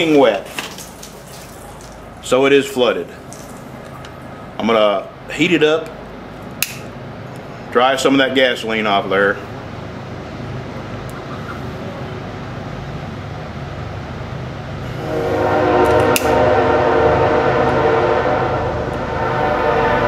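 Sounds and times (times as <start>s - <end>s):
sharp click: 6.6s - 6.9s
horn-like chord: 14.8s - 20.0s.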